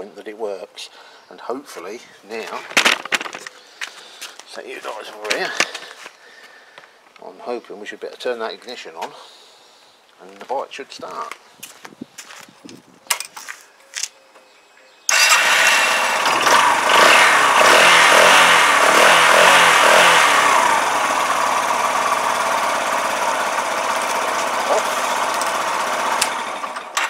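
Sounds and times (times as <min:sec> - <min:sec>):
motorcycle engine revving and idling: 0:15.1 - 0:27.0.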